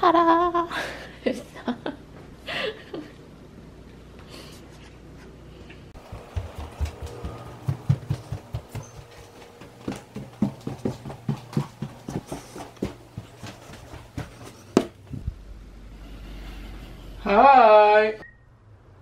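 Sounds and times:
footsteps climbing stairs: 6.0s - 15.3s.

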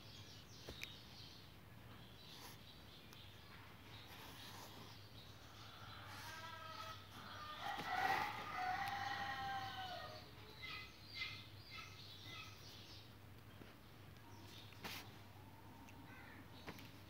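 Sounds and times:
rooster crowing: 6.1s - 10.2s.

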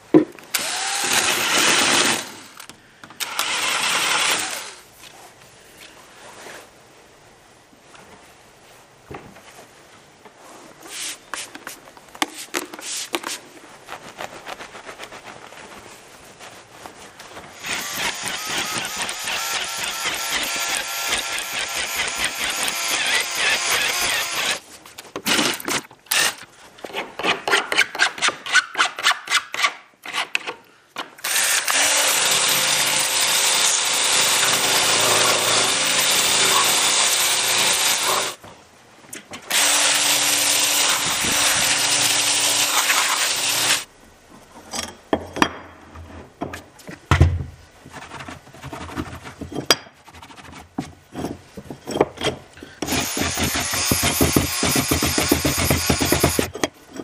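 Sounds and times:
power tool running: 0.5s - 4.8s, 17.6s - 24.6s, 31.2s - 38.4s, 39.5s - 43.9s, 52.8s - 56.5s.

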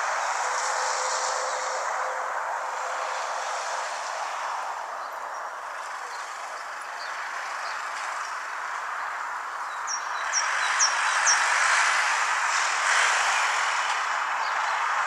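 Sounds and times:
broad background rush: 0.0s - 15.0s
bird chirping: 9.6s - 11.4s.

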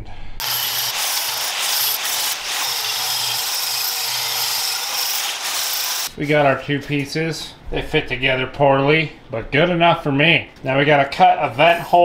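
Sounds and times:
angle grinder grinding metal: 0.4s - 6.1s.

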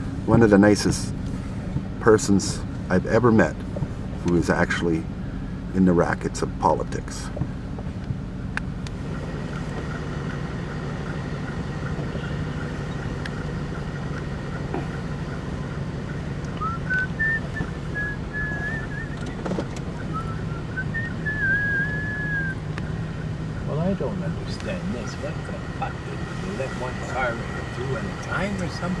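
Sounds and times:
car engine running: 0.0s - 29.0s
person whistling: 16.6s - 19.2s, 20.0s - 22.6s.

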